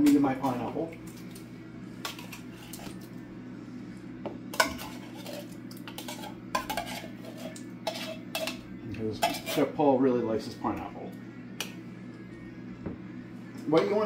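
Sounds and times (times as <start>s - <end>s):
utensil scraping in tin can: 4.6s - 9.8s.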